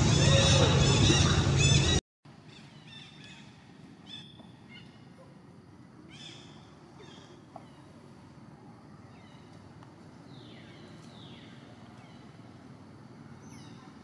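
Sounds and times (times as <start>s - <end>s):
high chirping animal calls: 0.0s - 2.0s
faint outdoor background: 0.0s - 14.0s.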